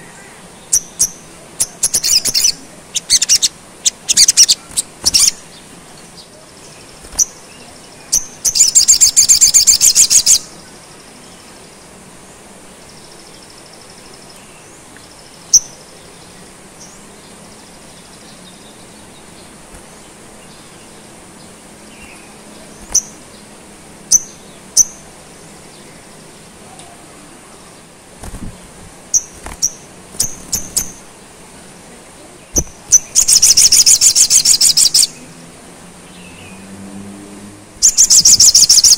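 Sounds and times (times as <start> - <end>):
bird high trill: 0.0 - 5.5, 8.1 - 10.5, 32.5 - 35.2, 37.8 - 38.9
bird sharp chirps: 0.7 - 5.6, 6.2 - 10.5, 22.0 - 23.2, 32.5 - 35.2, 37.8 - 38.9.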